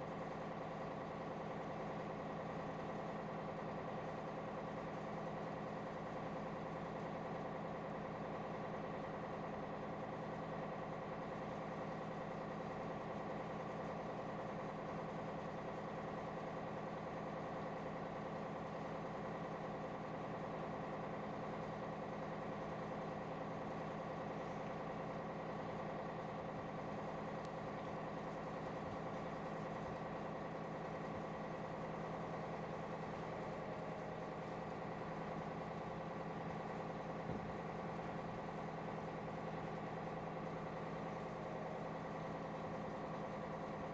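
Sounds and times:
ship diesel engine humming: 22.4 - 43.7.

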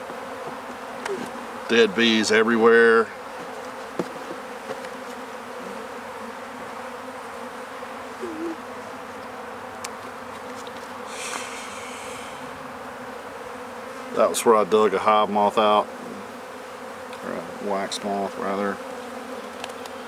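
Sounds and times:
honeybees buzzing: 0.0 - 20.0
hive tool knocking: 3.4 - 5.2.

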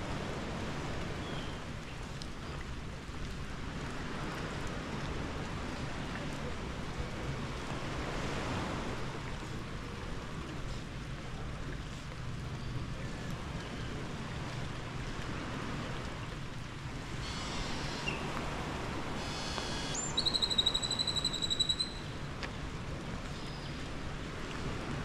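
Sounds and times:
outdoor background noise: 0.0 - 25.0
bird whistle and trill: 19.3 - 22.1.

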